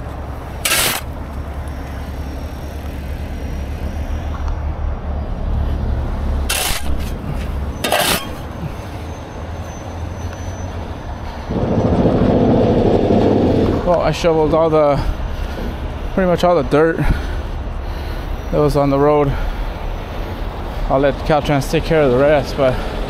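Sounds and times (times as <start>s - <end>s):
truck engine rumble: 0.0s - 23.0s
shovel scraping on asphalt: 0.6s - 1.2s, 6.4s - 8.7s.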